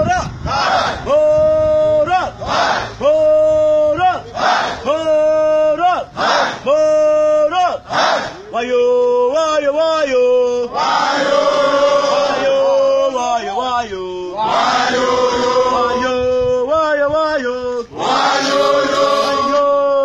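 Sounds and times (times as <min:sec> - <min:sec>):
group of men singing response: 0:07.8 - 0:13.4, 0:14.2 - 0:20.0
man singing lead line: 0:08.5 - 0:10.7, 0:15.6 - 0:20.0.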